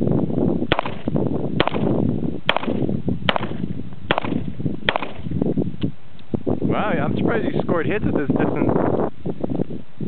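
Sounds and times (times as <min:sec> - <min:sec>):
revolver gunshots: 0:00.7 - 0:05.3.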